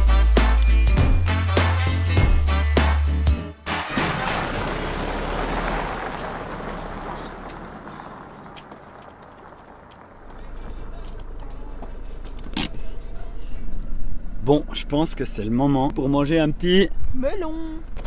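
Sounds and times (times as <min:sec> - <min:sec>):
pickup truck driving past: 0:03.7 - 0:12.2.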